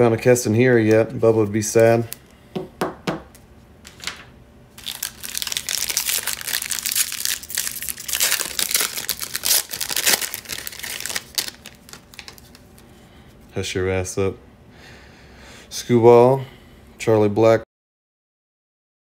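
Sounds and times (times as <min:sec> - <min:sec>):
foil wrapper crinkling: 0:03.9 - 0:12.9.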